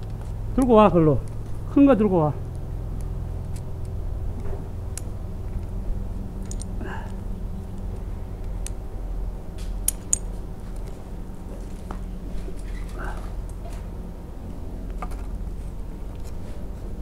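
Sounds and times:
steady low rumble: 0.0s - 17.0s
metal climbing gear clinking: 6.4s - 7.2s, 9.7s - 11.0s.

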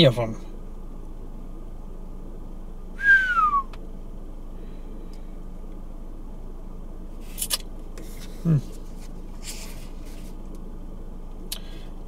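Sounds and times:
low background hum: 0.0s - 12.0s
person whistling falling note: 3.0s - 3.7s.

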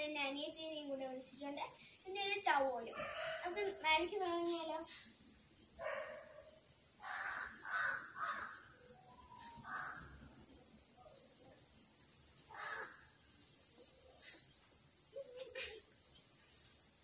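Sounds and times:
crows cawing: 7.0s - 8.7s, 9.6s - 10.1s, 12.5s - 13.0s.

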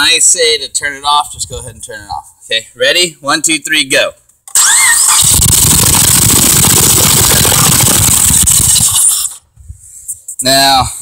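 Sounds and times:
starter whine: 4.5s - 9.4s
car engine running loudly: 5.1s - 8.9s.

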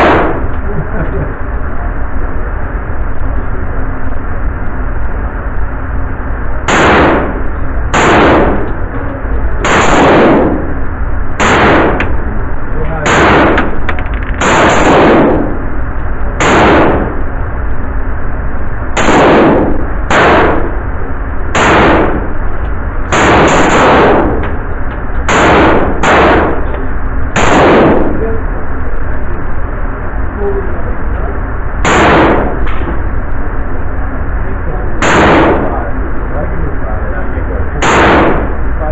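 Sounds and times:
gunshots with echo: 0.0s - 0.5s, 6.7s - 8.8s, 9.6s - 10.8s, 11.4s - 12.2s, 12.8s - 15.6s, 16.4s - 17.2s, 19.0s - 20.8s, 21.5s - 22.3s, 23.1s - 24.6s, 25.3s - 26.7s, 27.3s - 28.3s, 31.8s - 32.9s, 35.0s - 36.0s, 37.8s - 38.8s.

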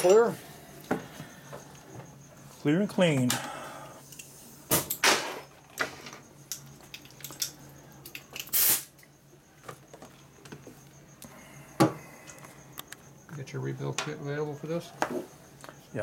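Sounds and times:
metal tools clinking: 0.0s - 0.4s, 4.1s - 8.6s
compressed air hiss: 8.5s - 8.9s.

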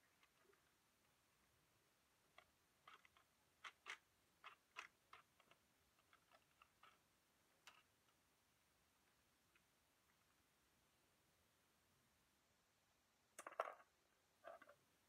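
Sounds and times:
hard plastic toy clicks: 2.8s - 7.0s.

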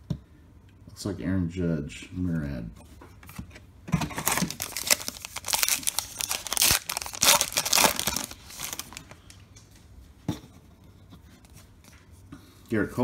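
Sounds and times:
wrapper crinkling: 4.1s - 9.3s.

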